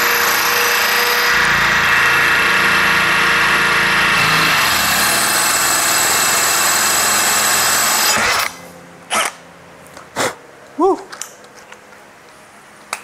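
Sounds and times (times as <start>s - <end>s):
drill grinding into granite tile: 0.0s - 9.3s.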